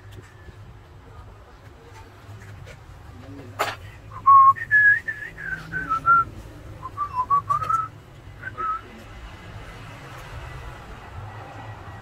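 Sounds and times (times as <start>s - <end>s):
person whistling a tune: 4.2s - 8.9s.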